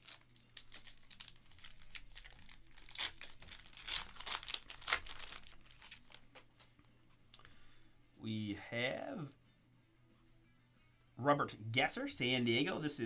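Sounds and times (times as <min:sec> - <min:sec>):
foil pack crinkling and tearing: 0:00.0 - 0:06.4.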